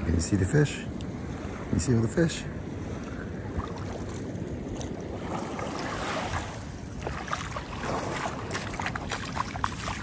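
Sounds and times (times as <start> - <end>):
wind buffeting microphone: 0.0 - 10.0
lapping shallow water: 2.7 - 10.0.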